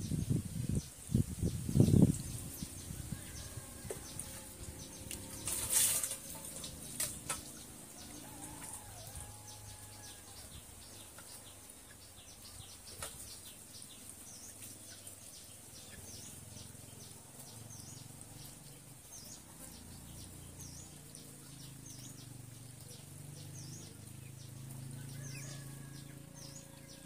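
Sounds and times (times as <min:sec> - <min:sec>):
water splashing from a basin: 0:03.9 - 0:09.3.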